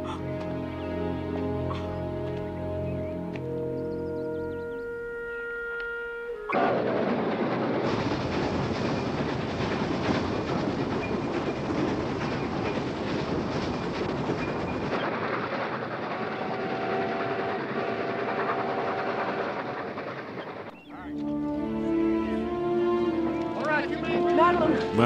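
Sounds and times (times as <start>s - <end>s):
train wheels clattering on rails: 6.5s - 20.9s.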